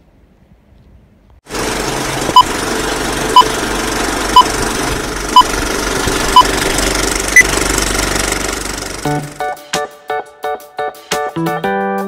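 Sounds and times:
film projector rattle: 1.5s - 9.4s
short beeps: 3.3s - 3.5s, 4.3s - 4.5s, 6.3s - 6.6s.

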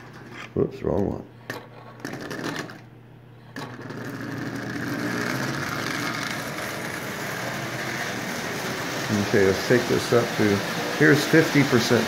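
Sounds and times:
toy train electric motor running: 3.5s - 12.0s
train wheels rolling on metal track: 3.6s - 12.0s.

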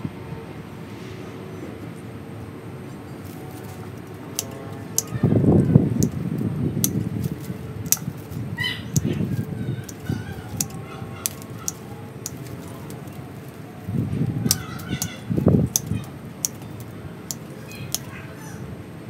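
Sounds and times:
rustle of branches and leaves: 3.0s - 18.2s
pruning shears snipping twigs: 3.2s - 5.2s, 6.0s - 18.1s.

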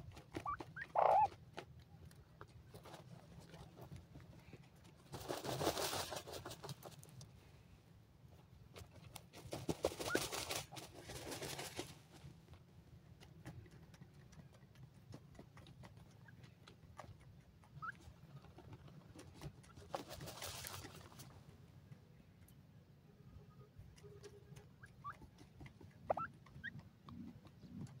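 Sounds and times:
birds' wings flapping in dirt: 4.5s - 7.1s, 8.8s - 12.2s, 18.3s - 21.3s.

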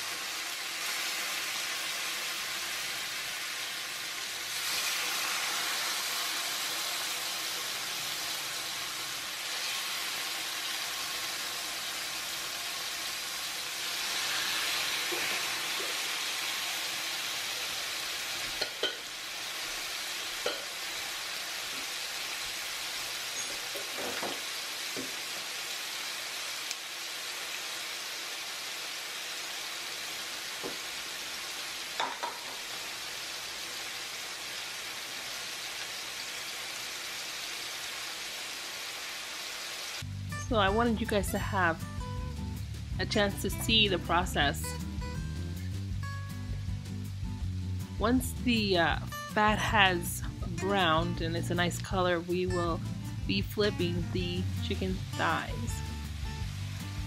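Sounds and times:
chicken sizzling in hot oil: 0.0s - 40.1s, 49.1s - 57.0s.

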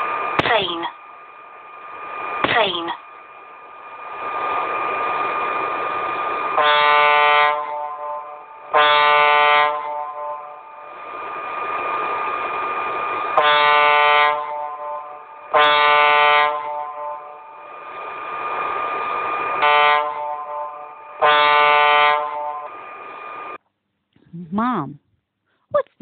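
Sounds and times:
vehicle horn blasts: 6.6s - 10.5s, 13.4s - 17.2s, 19.6s - 22.6s.

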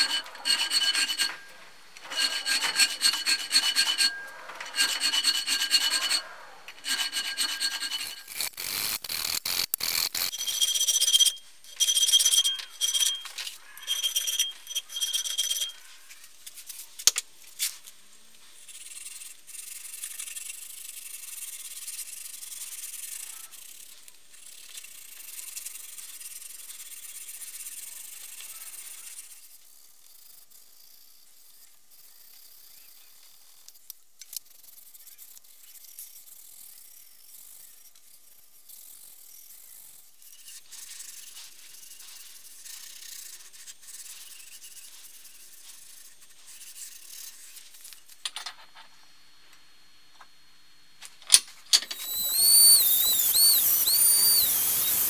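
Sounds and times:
abrasive block sanding knife blade: 0.0s - 15.8s, 52.0s - 55.0s.

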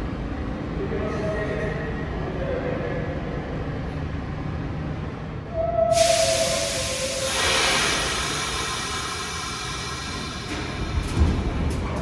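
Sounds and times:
subway train rumbling: 0.0s - 12.0s
steady tone: 5.5s - 11.1s
loud hiss: 5.9s - 11.1s.

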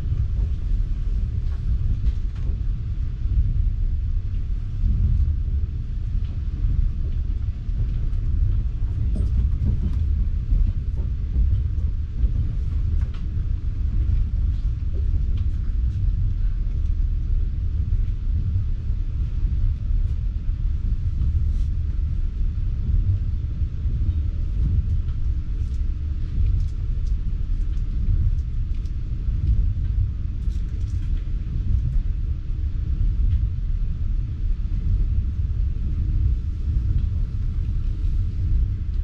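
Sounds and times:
train rumbling on rails: 0.0s - 39.0s
faint light ticks: 24.6s - 32.1s.

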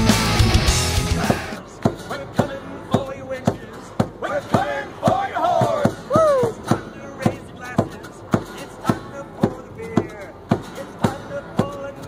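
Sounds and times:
strummed acoustic guitars: 0.0s - 12.0s
thumping beat: 0.0s - 12.0s
voices singing: 0.7s - 12.0s.

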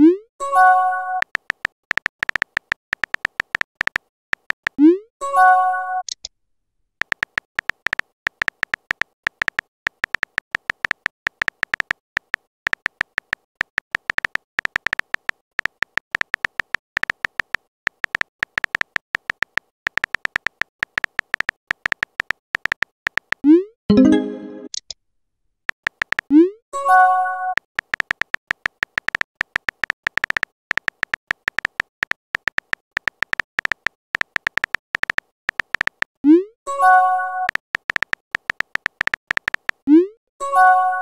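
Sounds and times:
rapid keyboard tap clicks: 1.2s - 4.8s, 7.0s - 23.4s, 25.7s - 26.3s, 27.6s - 36.2s, 37.5s - 39.8s
short synthesized chime: 23.9s - 24.7s.

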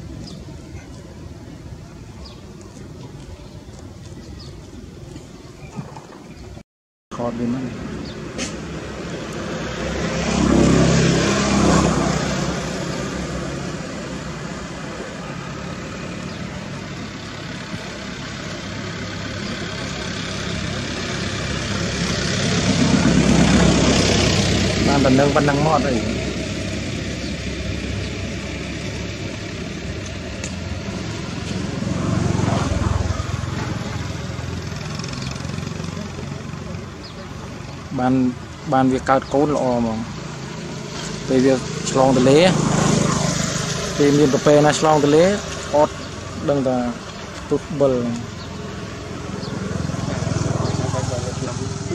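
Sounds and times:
engine droning past: 7.2s - 51.9s.

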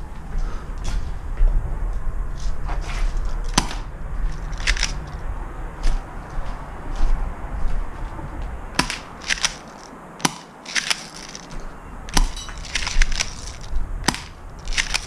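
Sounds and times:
footsteps crunching over rubble: 0.1s - 15.0s
sharp cracks and clicks: 3.5s - 5.2s, 8.8s - 15.0s.

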